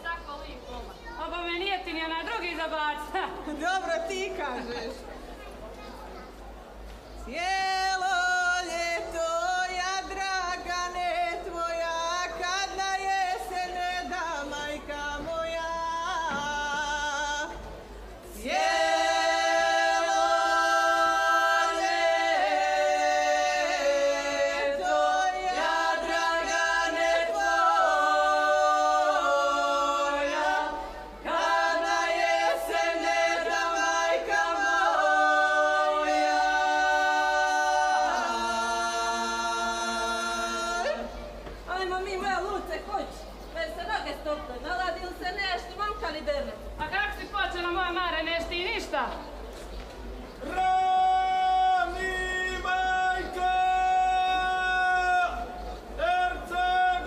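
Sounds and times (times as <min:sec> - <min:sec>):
group singing a cappella: 0:07.3 - 0:41.2, 0:50.4 - 0:57.0.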